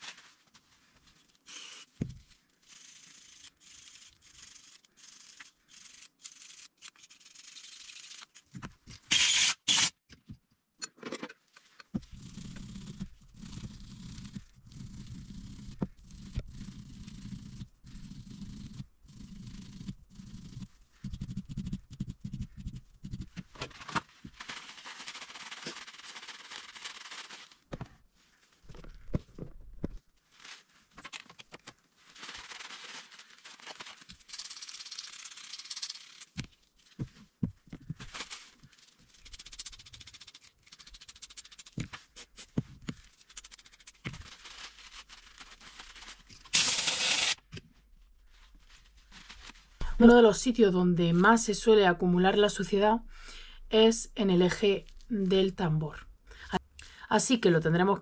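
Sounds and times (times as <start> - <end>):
paper towel rubbing on metal: 24.4 - 27.6
compressed air hiss: 46.6 - 47.4.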